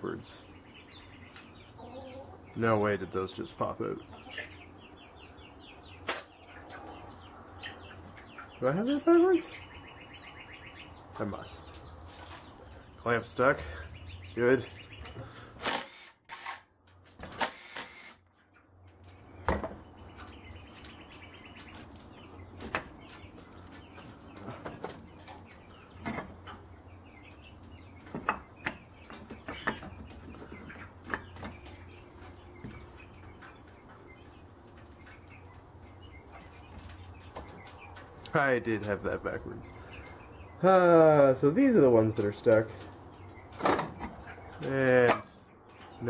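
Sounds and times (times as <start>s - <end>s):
bird chirps: 0.0s - 15.6s.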